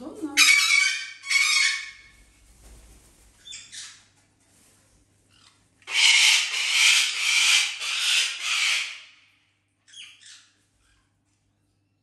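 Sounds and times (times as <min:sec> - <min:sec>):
parrot screeching: 0:00.4 - 0:02.1, 0:05.3 - 0:09.2.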